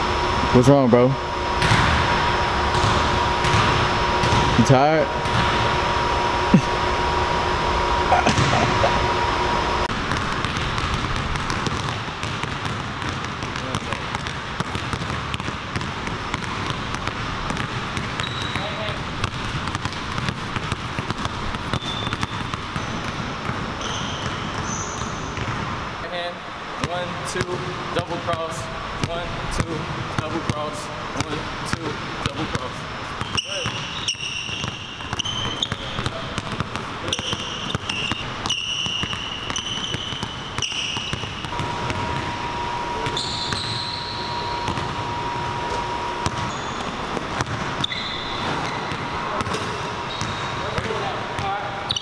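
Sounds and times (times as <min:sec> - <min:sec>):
sneakers squeaking: 0:01.4 - 0:25.9, 0:31.2 - 0:52.0
basketballs bouncing on wooden floor: 0:01.6 - 0:05.7, 0:08.1 - 0:09.0, 0:09.9 - 0:25.8, 0:26.8 - 0:52.0
short high squeaks: 0:18.2 - 0:18.8, 0:21.7 - 0:23.0, 0:23.8 - 0:25.3, 0:33.2 - 0:36.0, 0:37.0 - 0:41.4, 0:43.0 - 0:44.8, 0:46.4 - 0:47.0, 0:47.8 - 0:49.0.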